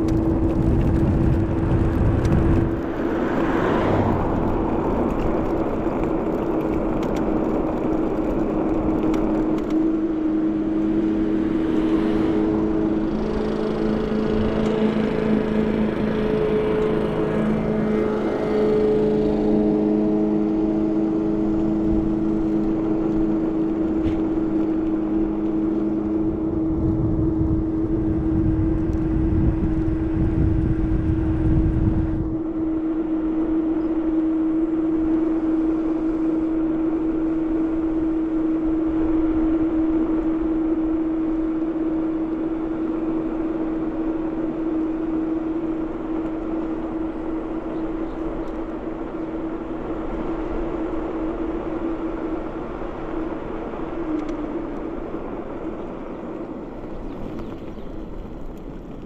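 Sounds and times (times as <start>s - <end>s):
low rumble: 0.0s - 42.2s
electric scooter motor whining: 0.0s - 59.0s
road and wind noise: 0.0s - 59.0s.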